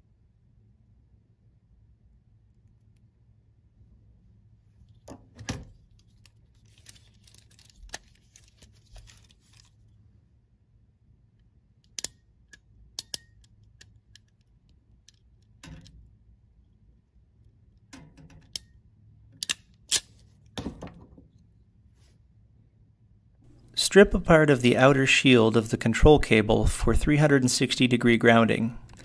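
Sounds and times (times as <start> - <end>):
wires rustling: 4.8 - 10.0
wire stripper clicking and snipping: 11.8 - 16.0, 19.4 - 20.1.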